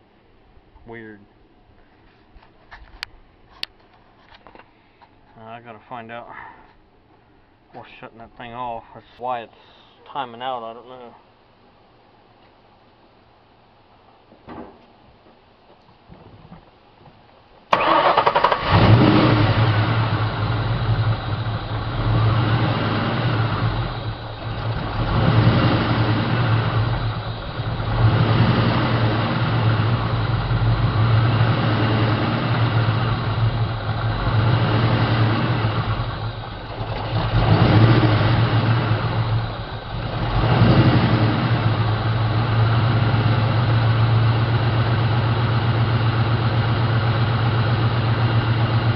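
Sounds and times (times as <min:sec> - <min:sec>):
car engine starting and running: 0:17.7 - 0:48.9.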